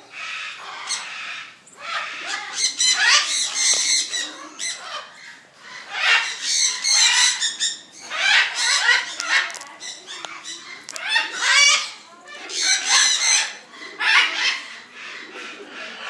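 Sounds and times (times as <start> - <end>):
cockatoo raspy calls: 0.1 - 16.0.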